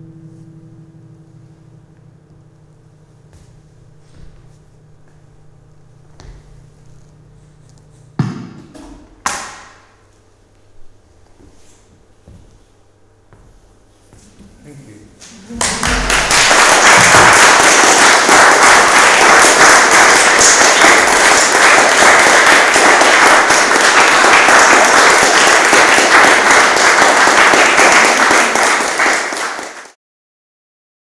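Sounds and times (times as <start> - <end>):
audience applauding: 15.4 - 30.0.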